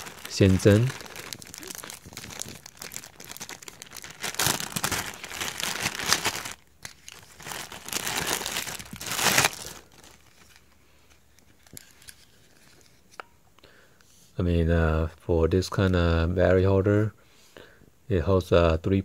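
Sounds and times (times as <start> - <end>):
plastic bag crinkling: 0.0 - 10.8.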